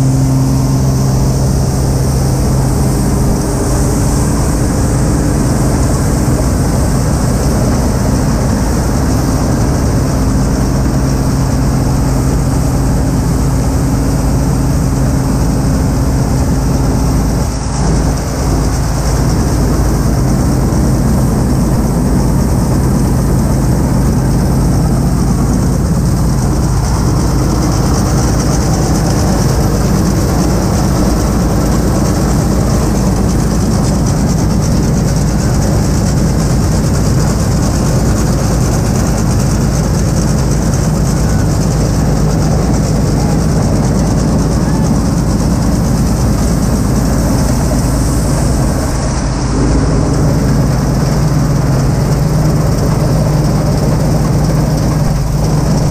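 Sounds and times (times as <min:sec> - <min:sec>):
combine harvester drone: 0:00.0 - 0:55.9.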